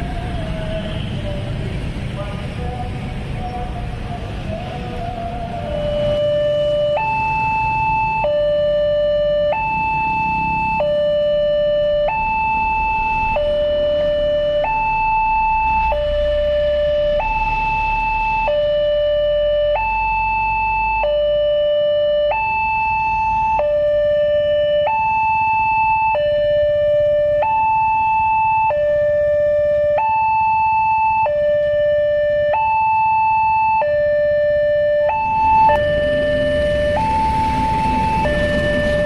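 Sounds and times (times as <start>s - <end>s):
two-tone crossing alarm: 5.0s - 39.0s
low rumble: 35.2s - 39.0s.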